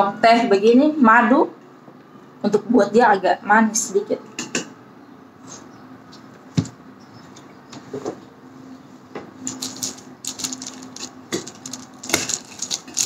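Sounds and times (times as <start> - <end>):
crisp snack crackling: 9.4 - 13.0.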